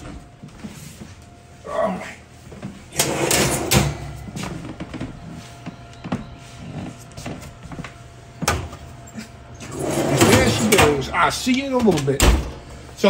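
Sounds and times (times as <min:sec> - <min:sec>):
kitchen items clattering: 0:03.0 - 0:04.2, 0:09.6 - 0:11.2.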